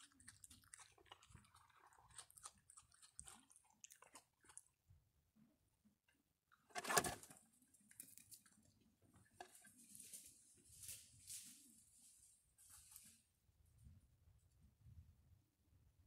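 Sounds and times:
raccoons chewing dry kibble: 0.0 - 5.0, 6.8 - 13.2.

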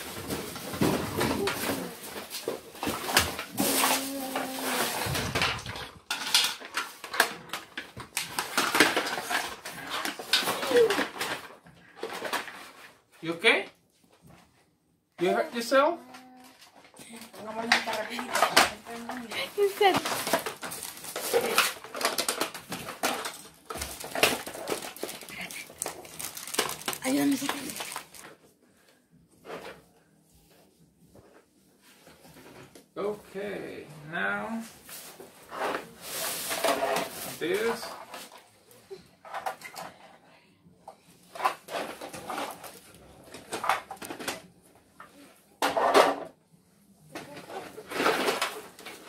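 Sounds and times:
plastic toy parts clattering: 0.1 - 12.9, 16.1 - 28.4, 39.2 - 40.1, 41.3 - 44.5, 47.2 - 49.0
plastic pieces clacking: 0.2 - 12.8, 16.1 - 28.4
plastic packaging crinkling: 17.7 - 28.4.

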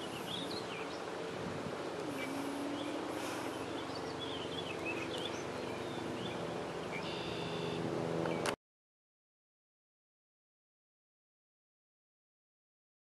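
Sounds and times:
steady low hum: 0.0 - 8.5.

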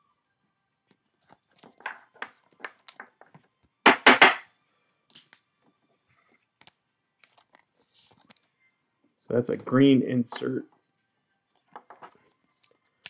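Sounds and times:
trading cards and wrappers rustling: 1.2 - 3.4, 6.3 - 8.6, 11.6 - 13.0
loud knocks on a table: 3.9 - 4.4.

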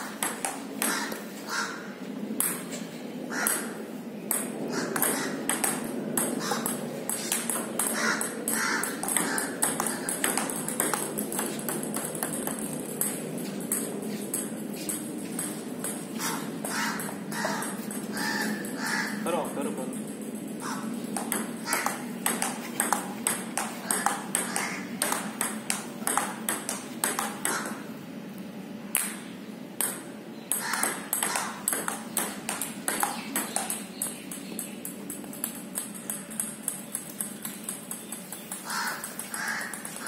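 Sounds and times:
table tennis ball clicking: 4.3 - 16.0, 20.0 - 27.8, 29.8 - 40.0.

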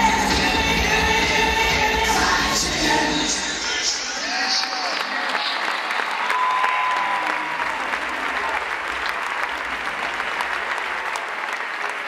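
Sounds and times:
large crowd clapping: 4.1 - 12.0.

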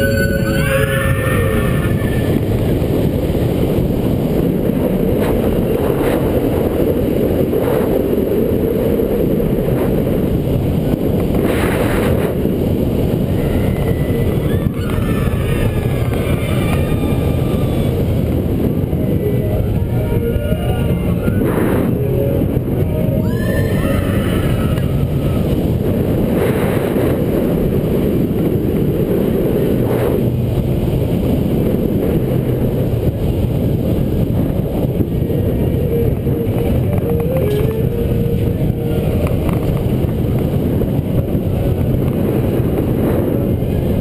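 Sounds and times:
roller coaster wheels rumbling: 0.0 - 44.0
wind rushing on microphone: 0.0 - 44.0.

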